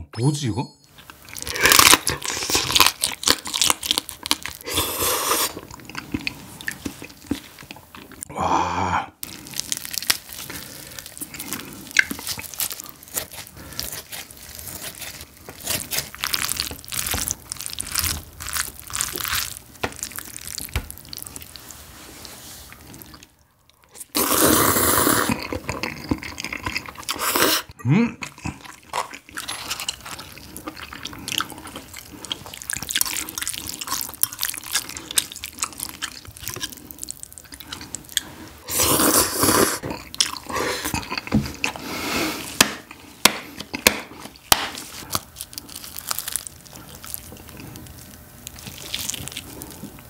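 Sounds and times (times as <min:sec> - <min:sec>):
crab shell crunching: 0:01.0 - 0:08.3, 0:09.2 - 0:21.6, 0:28.3 - 0:38.8, 0:42.4 - 0:50.0
slurping noodles: 0:04.6 - 0:07.1, 0:24.0 - 0:27.7, 0:34.8 - 0:42.6.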